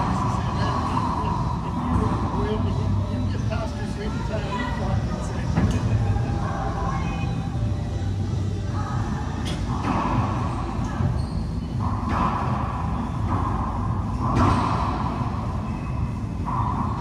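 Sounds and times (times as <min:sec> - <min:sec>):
racquetball striking racquets and walls: 0:11.8 - 0:17.0.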